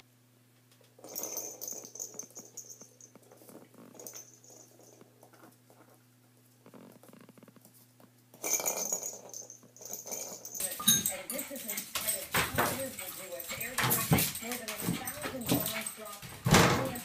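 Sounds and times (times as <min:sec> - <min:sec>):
faint steady hum: 0:00.0 - 0:17.0
puppy claws tapping on floor: 0:08.8 - 0:17.0.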